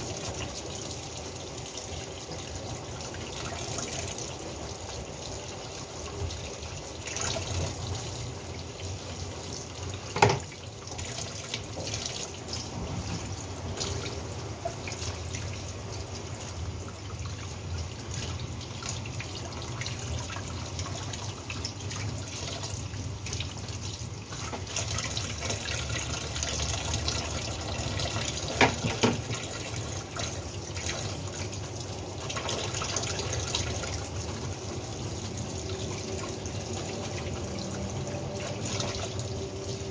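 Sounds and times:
tap running into metal sink: 10.1 - 10.6, 28.3 - 29.5.

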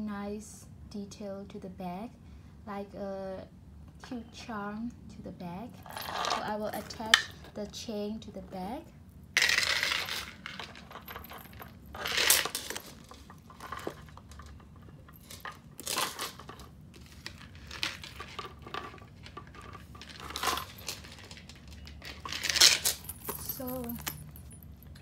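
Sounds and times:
metal chain clinking and jingling: 5.8 - 7.6, 9.4 - 16.8, 19.6 - 25.0.

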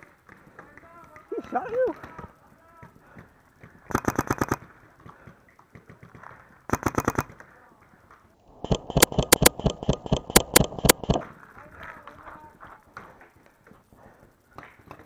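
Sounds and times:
paintball marker firing rapidly: 3.9 - 7.4, 8.6 - 11.3.

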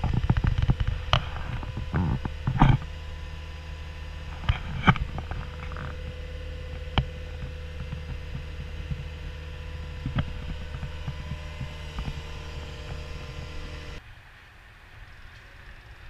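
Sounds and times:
diesel engine running: 0.0 - 14.0.

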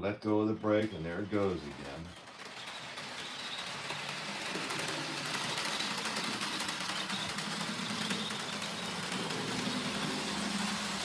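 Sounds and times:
wheels clicking on rails: 0.0 - 11.0
model train motor humming: 0.4 - 11.0.

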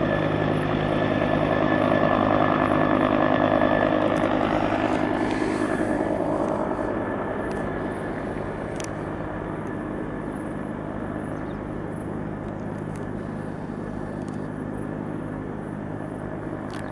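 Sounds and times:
helicopter rotor and turbine: 0.0 - 16.9
thin steady whine: 0.0 - 16.9.

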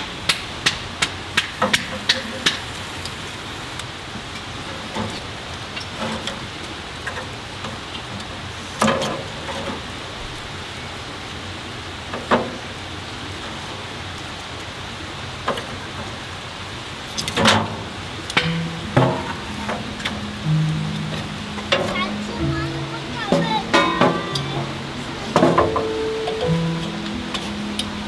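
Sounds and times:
steady hiss: 0.0 - 28.0
kindling sticks clacking on grate: 18.3 - 22.4.

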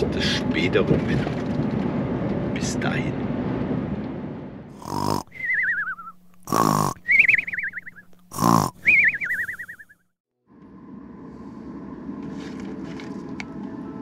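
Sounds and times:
comic snoring snorts: 4.7 - 5.6, 6.4 - 7.1, 8.3 - 9.0
falling wavering whistle: 5.3 - 6.2, 7.0 - 8.1, 8.8 - 10.0.

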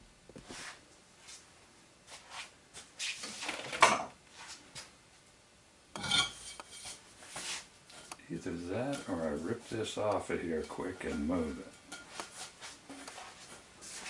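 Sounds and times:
metallic pipe scrape: 6.0 - 8.1
handling rustles and knocks: 6.0 - 14.0.

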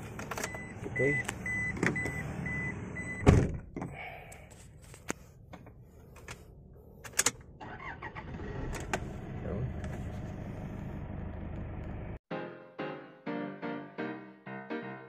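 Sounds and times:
car engine humming: 5.5 - 12.2.

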